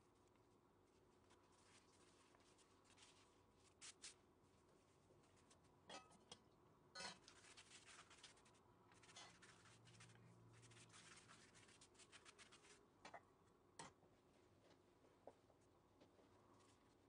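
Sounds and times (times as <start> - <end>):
pastry sheet crinkling and rustling: 0.0 - 5.9, 7.0 - 12.9.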